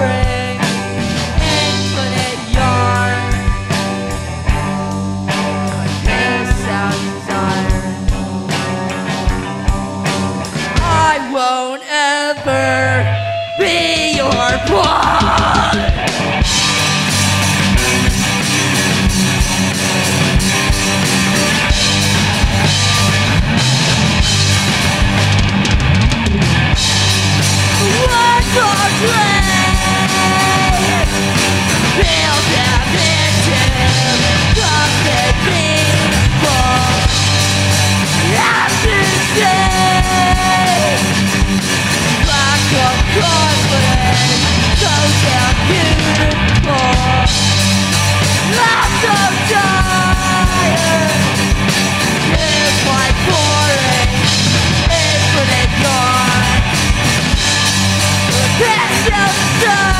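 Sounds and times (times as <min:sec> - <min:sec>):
lead vocals singing: 0:00.0 - 0:03.8, 0:05.7 - 0:08.7, 0:10.7 - 0:16.6, 0:27.7 - 0:47.5, 0:48.2 - 0:57.0, 0:58.2 - 0:59.9
drum kit: 0:00.0 - 0:11.4, 0:12.4 - 0:59.9
bass guitar: 0:00.0 - 0:11.5, 0:12.4 - 0:59.9
electric guitar: 0:00.0 - 0:59.9.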